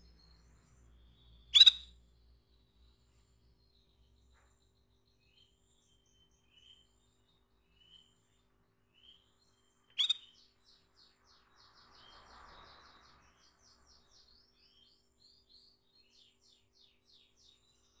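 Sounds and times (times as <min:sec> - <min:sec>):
canary calling: 0:01.5 - 0:01.9, 0:09.9 - 0:10.4
quick high chirps: 0:01.6 - 0:01.9, 0:10.0 - 0:10.3.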